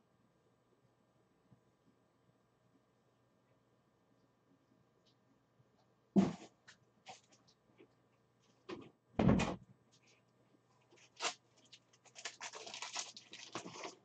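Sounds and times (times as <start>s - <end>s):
thump: 6.2s - 6.5s, 8.7s - 9.6s.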